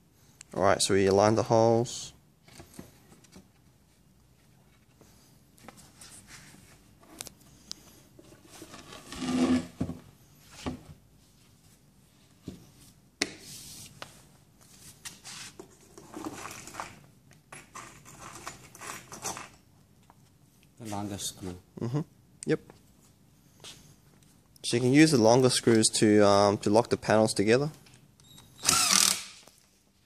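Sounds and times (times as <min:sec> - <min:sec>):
panels scraping and rubbing: 0:08.2 - 0:10.8.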